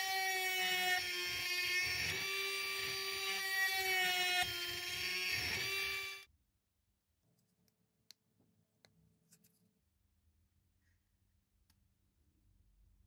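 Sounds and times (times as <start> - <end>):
small motor high whine: 0.0 - 6.3.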